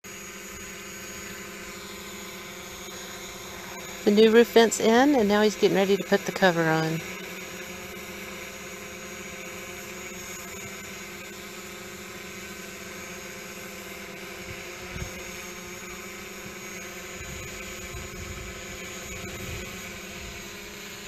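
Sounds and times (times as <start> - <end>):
drone propellers whining: 0.1 - 21.0.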